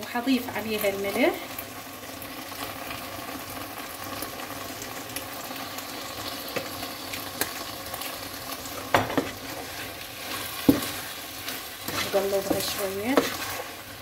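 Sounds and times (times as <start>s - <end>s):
chicken sizzling in frying pan: 0.0s - 14.0s
wooden spoon stirring and scraping: 9.0s - 14.0s.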